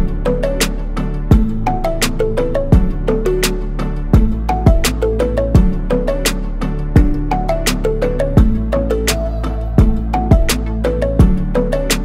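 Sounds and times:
background music with drum beat: 0.0s - 12.0s.

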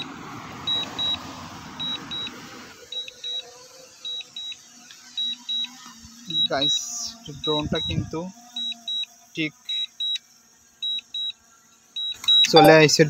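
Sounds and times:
even hiss: 4.0s - 11.3s, 12.0s - 13.0s
remote controller double beeps: 6.4s - 6.7s, 7.4s - 9.0s, 12.0s - 12.8s.

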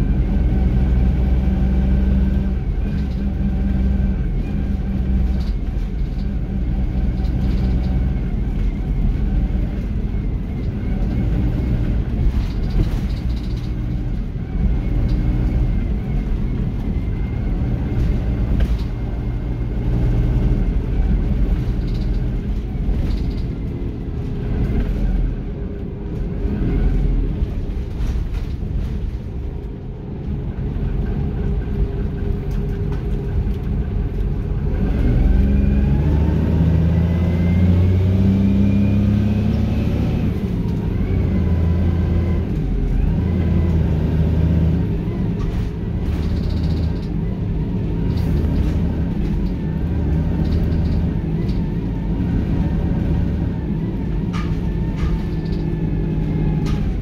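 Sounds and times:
bus diesel engine running: 0.0s - 57.0s
interior rattles: 10.2s - 19.2s, 45.3s - 53.2s.

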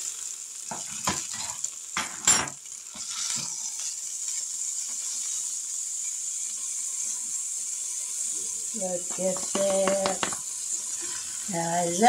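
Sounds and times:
hot grill hissing: 0.0s - 12.0s
cutlery clinking on plate: 0.7s - 2.6s.

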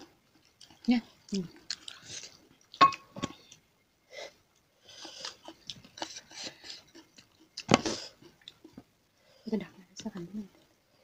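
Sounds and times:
chewing: 0.3s - 3.6s, 4.6s - 8.8s.

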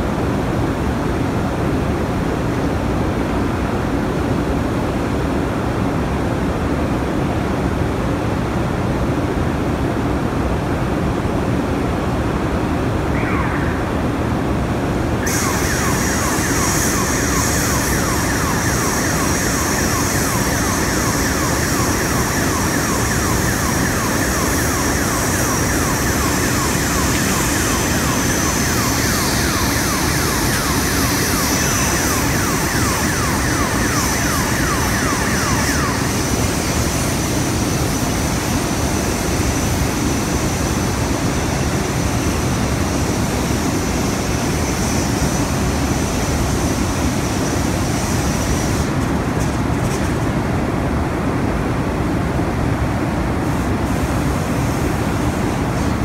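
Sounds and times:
blast furnace roar: 0.0s - 56.0s
sweeping electronic alarm: 13.1s - 14.1s, 15.2s - 38.0s.

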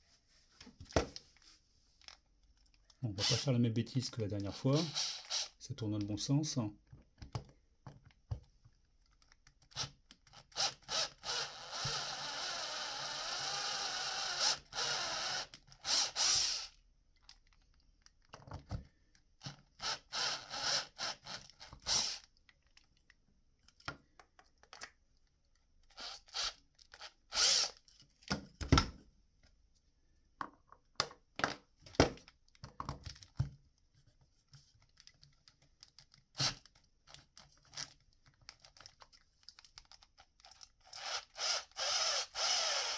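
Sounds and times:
cordless drill boring plastic: 3.2s - 3.5s, 4.4s - 5.6s, 9.6s - 17.4s, 19.4s - 22.3s, 25.9s - 27.9s, 35.9s - 39.0s, 39.6s - 42.9s.

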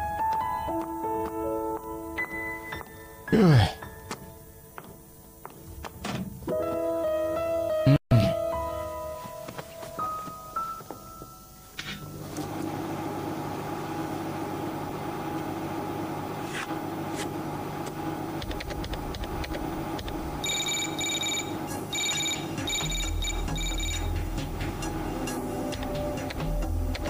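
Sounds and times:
electronic hum: 11.4s - 27.0s
rapid high electronic beeps: 18.6s - 24.4s.

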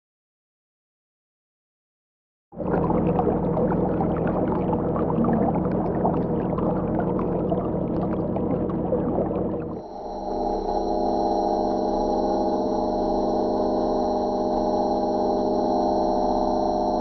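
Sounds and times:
water splashing along hull: 2.6s - 11.1s
model boat motor hum: 2.6s - 17.0s.

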